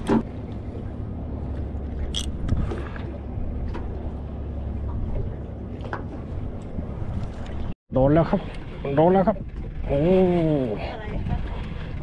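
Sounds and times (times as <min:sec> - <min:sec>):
boat engine idling: 0:00.0 - 0:07.7.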